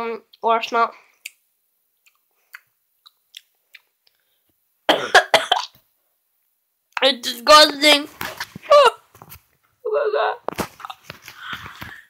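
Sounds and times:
boy coughing: 0:04.9 - 0:05.7.

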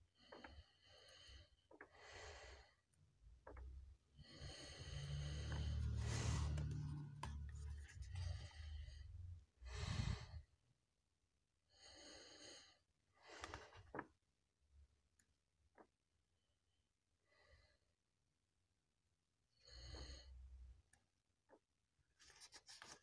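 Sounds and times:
low handling rumble: 0:03.6 - 0:10.4
comic book pages turning: 0:05.7 - 0:08.4, 0:22.2 - 0:23.0.

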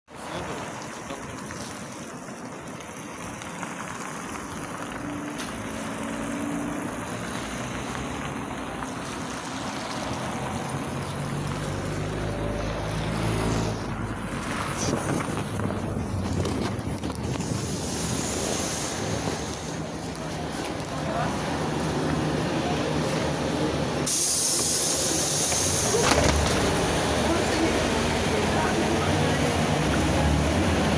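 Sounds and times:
street traffic: 0:00.1 - 0:30.9
bus engine hum: 0:00.2 - 0:30.9
wind buffeting microphone: 0:14.1 - 0:19.9.

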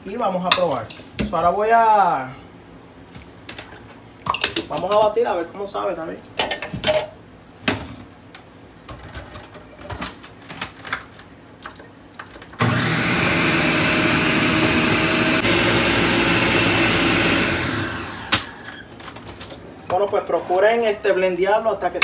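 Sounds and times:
blender running: 0:12.6 - 0:18.7.

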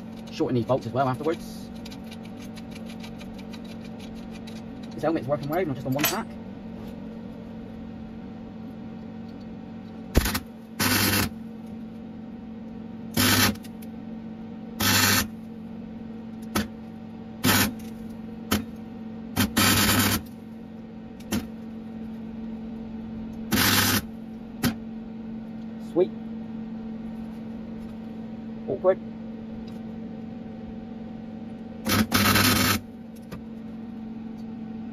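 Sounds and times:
steady hum: 0:00.0 - 0:34.9
welder arc crackle bursts: 0:10.1 - 0:11.4, 0:13.1 - 0:13.6, 0:14.8 - 0:15.3, 0:17.4 - 0:17.8, 0:19.4 - 0:20.3, 0:23.5 - 0:24.1, 0:31.8 - 0:32.8.

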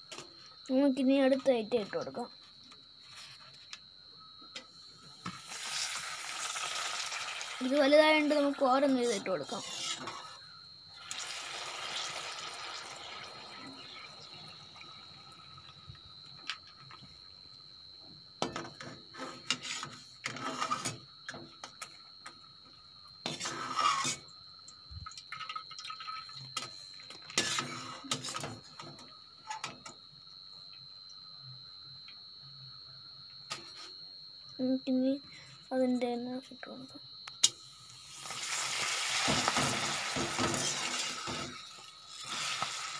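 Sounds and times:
deep-frying in hot oil sizzling: 0:05.2 - 0:17.0, 0:23.2 - 0:29.0, 0:37.4 - 0:42.9
slotted spoon scraping pan: 0:09.5 - 0:10.4, 0:19.2 - 0:21.0, 0:23.3 - 0:24.2, 0:27.4 - 0:28.6.

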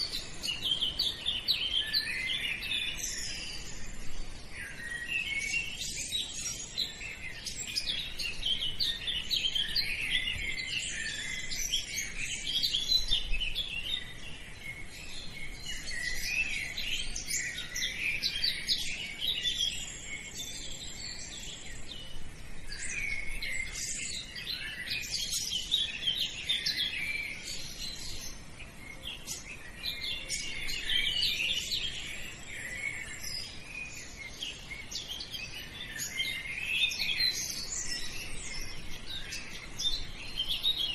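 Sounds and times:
small birds chirping: 0:00.0 - 0:40.9.

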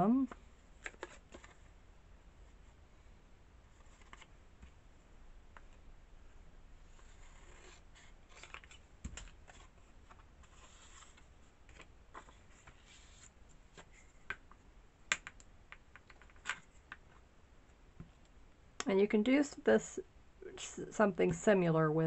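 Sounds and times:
paper rustling: 0:07.0 - 0:14.2.

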